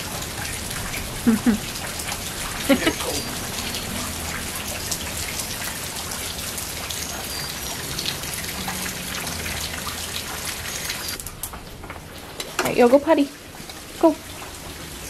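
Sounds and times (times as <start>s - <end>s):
steady rain falling: 0.0s - 15.0s.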